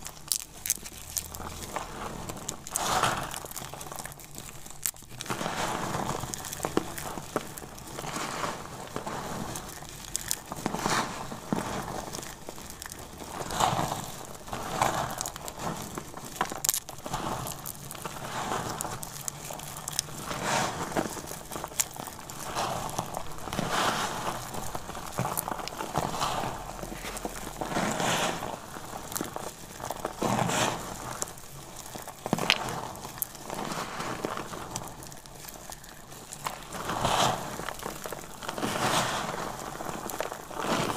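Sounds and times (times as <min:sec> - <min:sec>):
soap pieces crunching in fingers: 0:00.0 - 0:05.4, 0:08.8 - 0:10.7.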